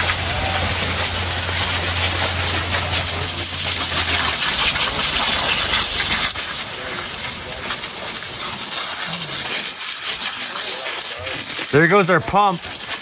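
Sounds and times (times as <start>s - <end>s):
low hum: 0.0s - 9.5s
hose spray hissing: 0.0s - 13.0s.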